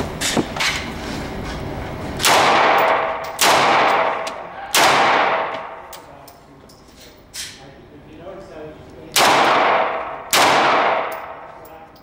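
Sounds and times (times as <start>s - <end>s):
pistol shots echoing indoors: 2.2s - 6.1s, 9.1s - 11.7s.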